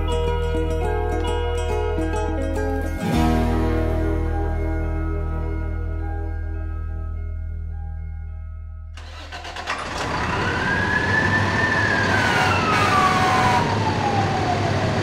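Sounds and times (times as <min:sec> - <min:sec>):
soft ambient music: 0:00.0 - 0:09.0
engine noise rush: 0:09.0 - 0:15.0
mechanical fire truck siren: 0:09.0 - 0:15.0.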